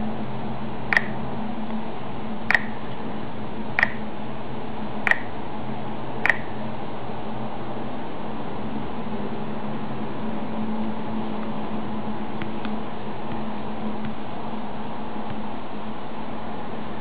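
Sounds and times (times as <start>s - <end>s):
steady hiss and low hum: 0.0s - 17.0s
touchscreen feedback clicks: 0.9s - 1.2s, 2.5s - 2.8s, 3.8s - 4.0s, 5.1s - 5.3s, 6.2s - 6.5s.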